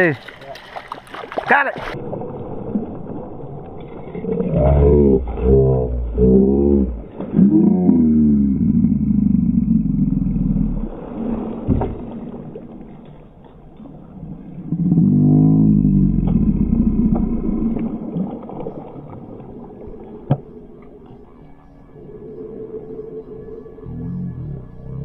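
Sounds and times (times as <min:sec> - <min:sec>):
fish splashing in water: 0:00.0 - 0:04.4.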